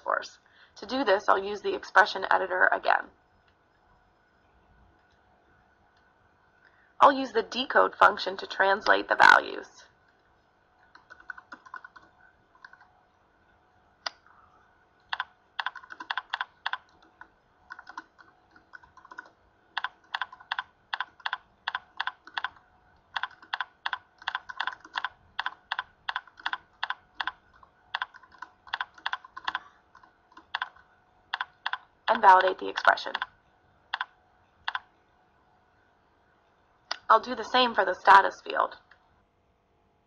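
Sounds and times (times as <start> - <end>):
typing on a keyboard: 10.8 - 12.9, 15.0 - 31.9, 32.8 - 33.3, 33.9 - 34.9.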